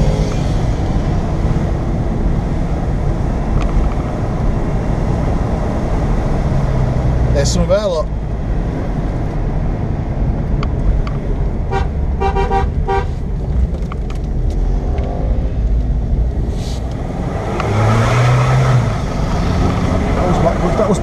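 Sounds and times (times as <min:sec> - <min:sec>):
car engine and road noise: 0:00.0 - 0:21.0
car horn toots: 0:11.7 - 0:13.2.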